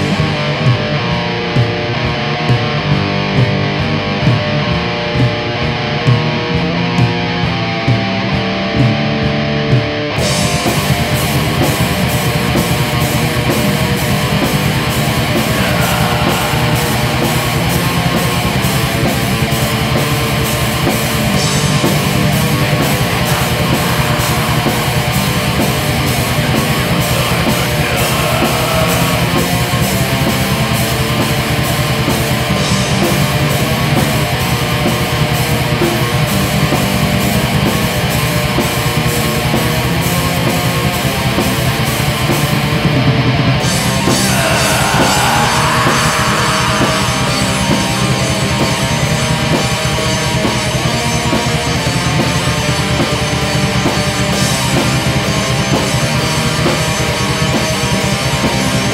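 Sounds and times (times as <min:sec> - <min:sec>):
distorted guitars: 0:00.0 - 0:58.9
rapid drumming: 0:09.7 - 0:37.9.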